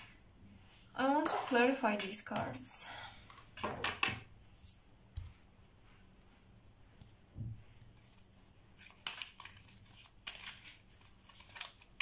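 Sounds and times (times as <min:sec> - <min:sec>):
cards shuffling: 0:08.8 - 0:12.0.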